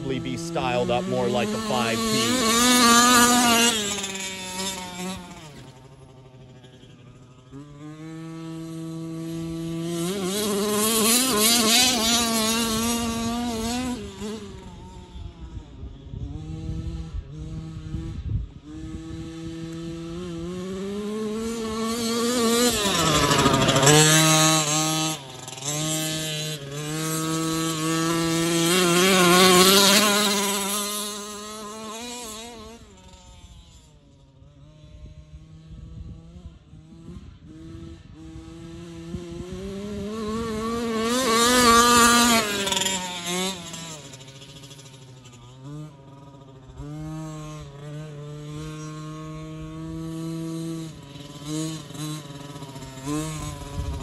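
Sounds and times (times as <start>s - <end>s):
toy truck engine revving: 0.0s - 7.2s, 8.0s - 15.1s, 19.7s - 34.0s, 39.8s - 54.0s.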